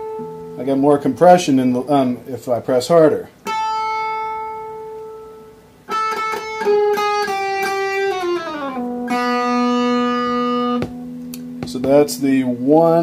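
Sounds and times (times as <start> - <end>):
distorted electric guitar: 3.4 - 13.0.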